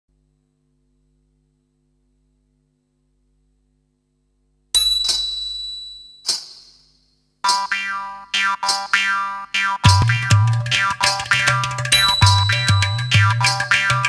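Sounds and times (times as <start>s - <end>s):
small bell ringing: 4.8s - 7.8s, 10.8s - 14.0s.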